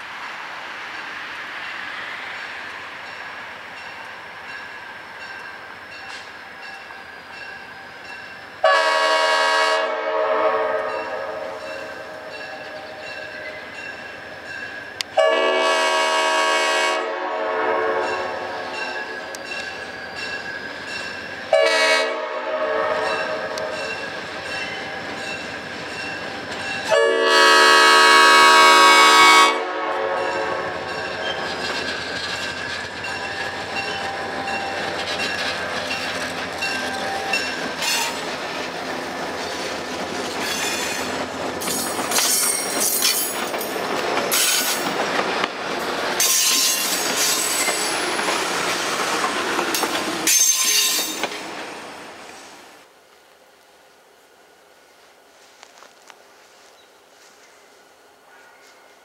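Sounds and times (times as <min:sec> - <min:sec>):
train wheels squealing: 0:02.3 - 0:08.6, 0:10.9 - 0:15.1, 0:18.0 - 0:21.5, 0:30.3 - 0:38.3, 0:40.4 - 0:43.5, 0:46.2 - 0:48.4, 0:49.8 - 0:51.3
crossing bell ringing: 0:03.0 - 0:08.8, 0:10.9 - 0:15.4, 0:18.0 - 0:21.8, 0:22.9 - 0:27.2, 0:30.2 - 0:38.2, 0:41.6 - 0:43.8, 0:46.2 - 0:47.9, 0:49.7 - 0:51.3
locomotive horn blasts: 0:08.6 - 0:11.7, 0:15.2 - 0:18.8, 0:21.5 - 0:23.9, 0:26.9 - 0:30.9
train wheels clacking over rail joints: 0:30.8 - 0:51.6.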